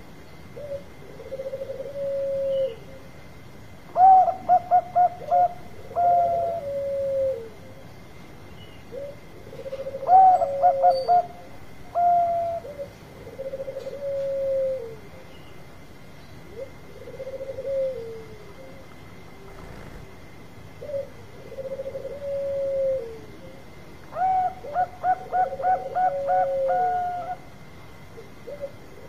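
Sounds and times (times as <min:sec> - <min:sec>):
dove cooing: 0:00.5 - 0:03.1, 0:03.9 - 0:07.8, 0:08.8 - 0:15.3, 0:16.4 - 0:20.2, 0:20.8 - 0:27.6, 0:28.2 - 0:29.0.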